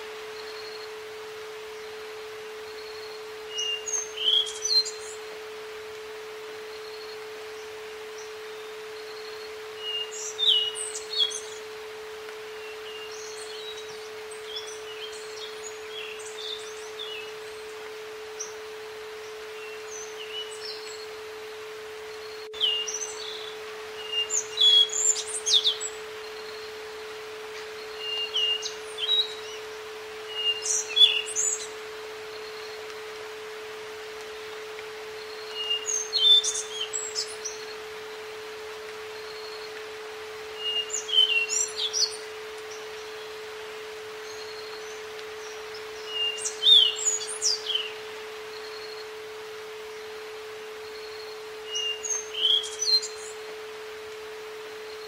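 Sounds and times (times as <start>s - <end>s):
steady pure tone: 0.0s - 55.0s
birds chirping and calling: 44.2s - 48.0s.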